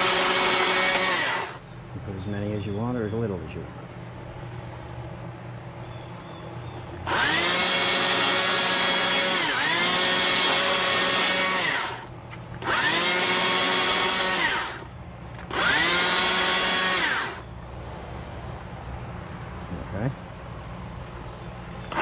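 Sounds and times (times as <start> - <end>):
electric chainsaw motor whine: 0.0 - 1.6, 7.1 - 14.9, 15.5 - 17.5.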